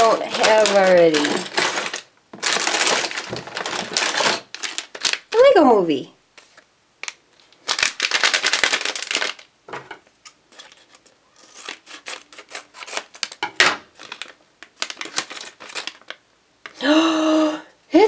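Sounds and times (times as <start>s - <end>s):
foil bag crinkling: 0.0s - 5.6s, 6.4s - 9.5s, 10.5s - 16.2s.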